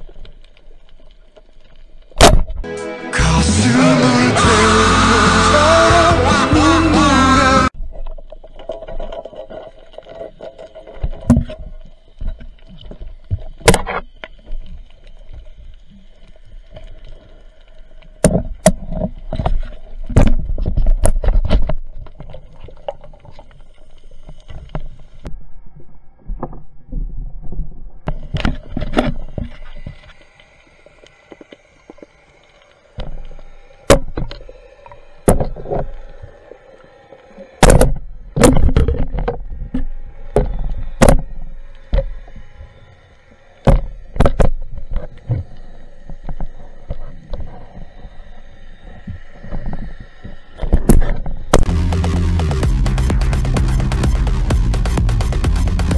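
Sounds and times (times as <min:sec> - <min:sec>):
water movement: 0:04.4 - 0:51.7
underwater knocks and bumps: 0:37.6 - 0:39.5.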